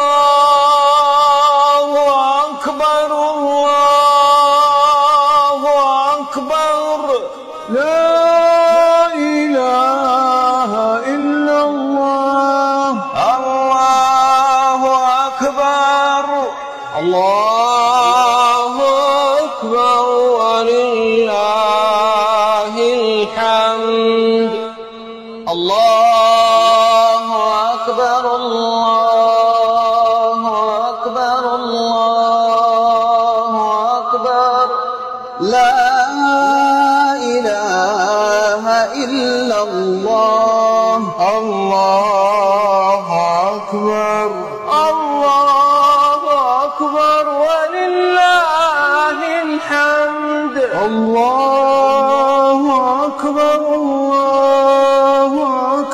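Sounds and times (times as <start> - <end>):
man chanting: 0.0 - 55.9.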